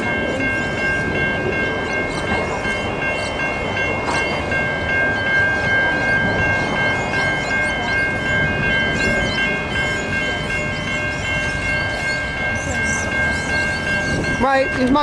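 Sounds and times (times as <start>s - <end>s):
level crossing warning bells: 0.0s - 15.0s
wind on microphone: 5.5s - 15.0s.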